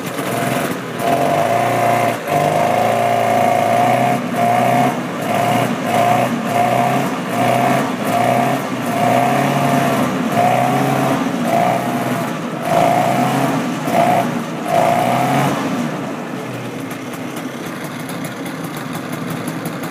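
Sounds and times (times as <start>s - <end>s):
snowmobile engine revving and idling: 0.0s - 19.9s.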